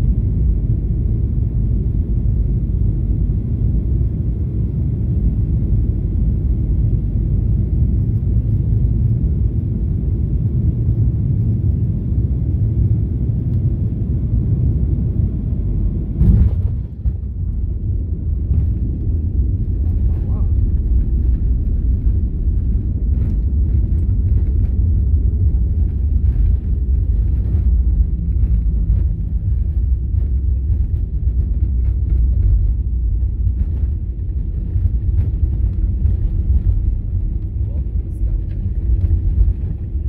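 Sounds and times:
aircraft cabin engine rumble: 0.0s - 40.0s
plane touchdown jolt: 16.2s - 17.4s.

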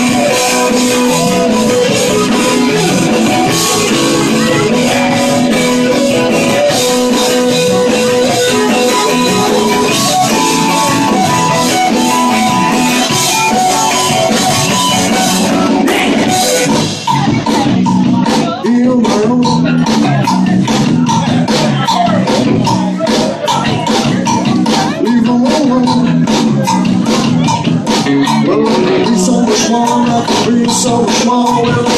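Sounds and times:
live rock band playing: 0.0s - 31.9s.

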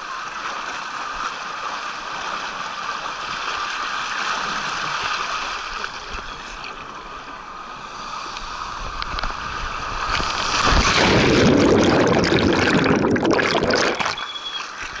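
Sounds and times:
underwater churning and bubbling: 1.4s - 15.0s
rushing water and air hiss: 1.9s - 15.0s
plunge into a pool: 10.0s - 14.8s.

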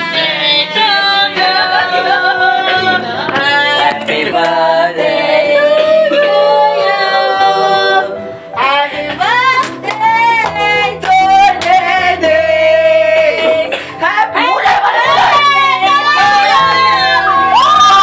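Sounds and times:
song with held vocal notes: 0.0s - 18.0s.

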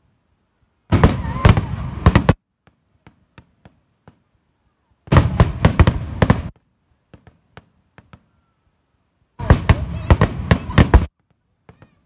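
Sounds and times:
fireworks bangs and crackling: 0.9s - 4.3s, 5.0s - 8.4s, 9.4s - 12.0s.

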